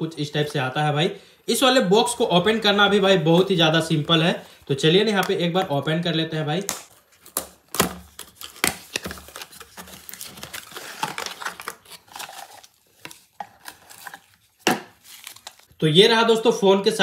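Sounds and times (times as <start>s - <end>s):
paper and packaging rustling: 6.5s - 15.7s.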